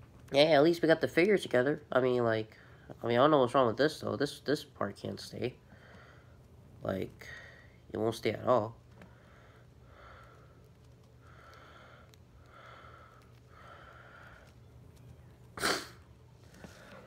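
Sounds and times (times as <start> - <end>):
person breathing through the nose: 11.2 - 14.6.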